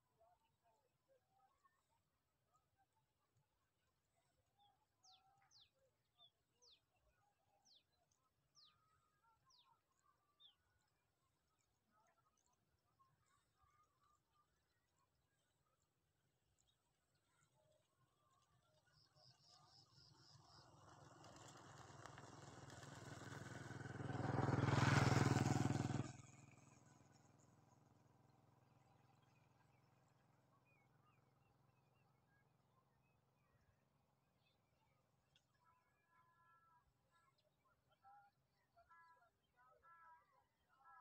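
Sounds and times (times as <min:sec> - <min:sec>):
vehicle engine approaching: 0:20.0 - 0:27.9.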